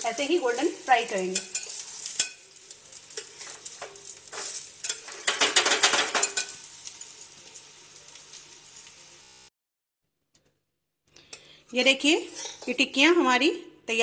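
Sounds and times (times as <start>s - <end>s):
food sizzling in oil: 0.0s - 9.5s, 11.6s - 13.4s
spatula scraping a pan: 0.1s - 6.7s, 11.3s - 12.8s.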